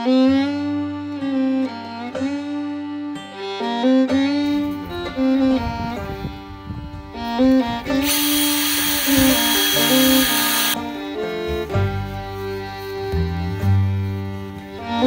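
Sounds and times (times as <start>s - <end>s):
background music with string melody: 0.0s - 15.0s
cordless power driver whirring: 7.8s - 10.8s.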